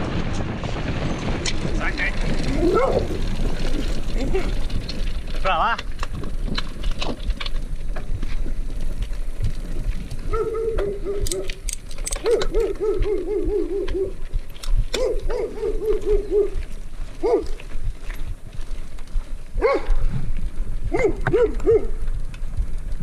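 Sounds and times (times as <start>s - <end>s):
bike clattering: 0.0s - 23.0s
bike tyres rumbling on stone: 0.0s - 23.0s
animal calling: 12.2s - 14.2s, 15.0s - 16.6s.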